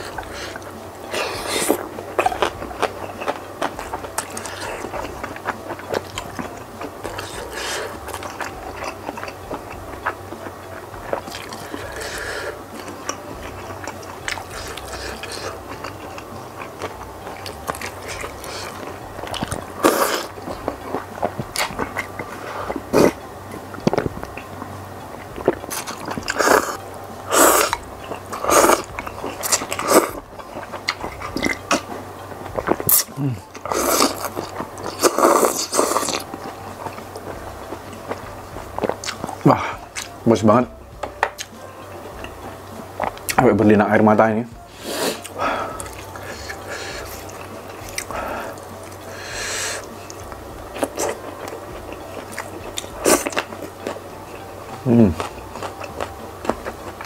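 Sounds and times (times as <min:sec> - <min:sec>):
person slurping noodles: 0:00.0 - 0:02.5, 0:07.2 - 0:08.0, 0:19.8 - 0:20.4, 0:22.3 - 0:23.2, 0:25.7 - 0:30.2, 0:32.7 - 0:36.2, 0:44.7 - 0:47.2
wet chewing: 0:00.0 - 0:40.2, 0:41.0 - 0:43.4, 0:44.6 - 0:57.0
breathy hissing exhale: 0:11.9 - 0:12.6, 0:44.7 - 0:47.1, 0:48.1 - 0:49.9.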